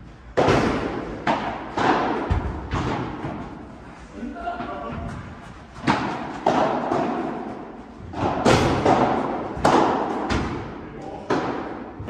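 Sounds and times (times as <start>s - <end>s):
ball struck with rackets: 0.4s - 3.4s, 5.8s - 7.5s, 8.1s - 11.9s
ball bouncing off walls: 0.4s - 3.6s.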